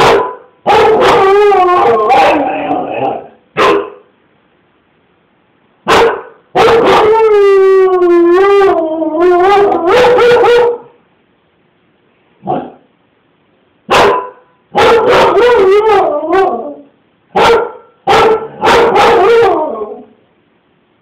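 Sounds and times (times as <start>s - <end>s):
dog barking and howling: 0.0s - 4.1s, 5.9s - 11.0s, 13.9s - 20.2s.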